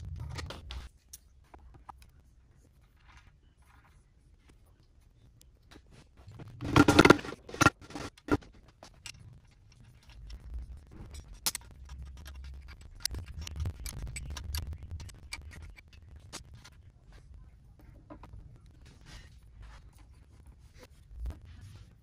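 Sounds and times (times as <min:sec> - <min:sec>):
metal parts clattering: 0:06.6 - 0:16.4.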